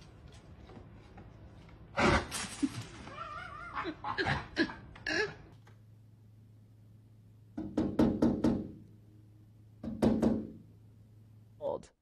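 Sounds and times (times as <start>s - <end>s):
beak knocking on glass door: 7.6s - 8.8s, 9.8s - 10.6s.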